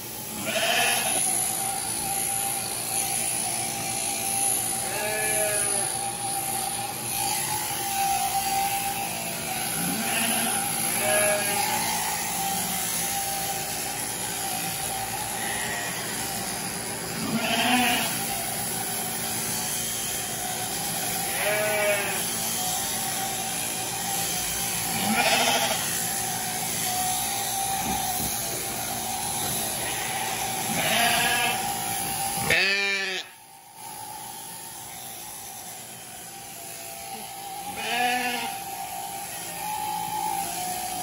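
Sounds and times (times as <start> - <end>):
electric clippers humming: 0.0 - 41.0
sheep bleating: 0.3 - 3.5, 4.1 - 16.4, 17.1 - 18.4, 21.1 - 23.2, 24.1 - 28.1, 28.8 - 33.4, 37.2 - 39.9.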